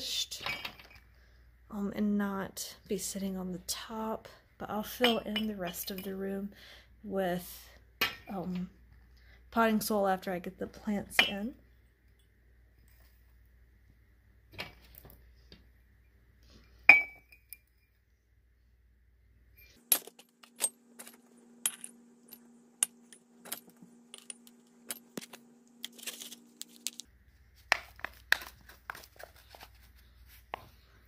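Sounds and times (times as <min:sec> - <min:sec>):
ceramic mugs clinking: 0:16.9 - 0:17.6.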